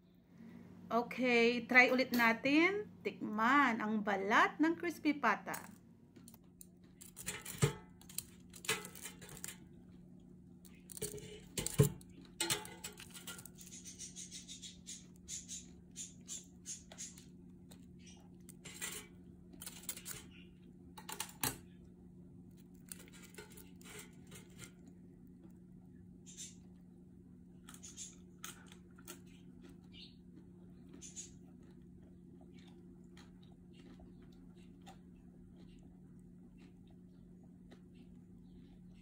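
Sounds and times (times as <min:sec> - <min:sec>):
low steady hum: 0:00.0 - 0:39.0
crispy skin crackling: 0:06.1 - 0:14.0
tongs knocking on metal basket: 0:07.0 - 0:09.5, 0:10.9 - 0:13.5.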